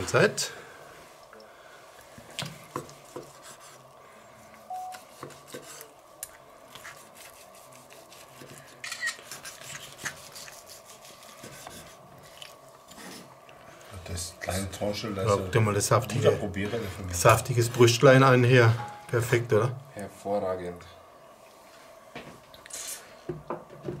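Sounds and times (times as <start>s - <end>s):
faint steady hum: 0.0s - 24.0s
knife sawing and scraping board: 5.0s - 5.9s, 6.8s - 12.0s.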